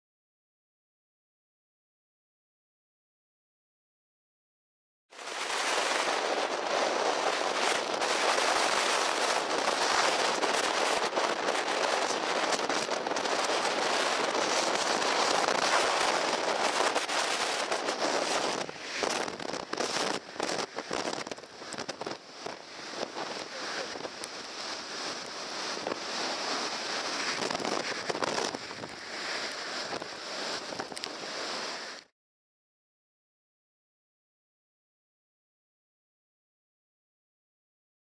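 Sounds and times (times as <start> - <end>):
storm wind and rain on microphone: 5.1 - 32.1.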